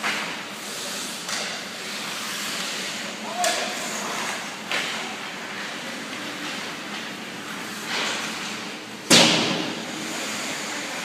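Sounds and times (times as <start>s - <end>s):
skates hissing on ice: 0.1s - 6.6s, 9.7s - 11.0s.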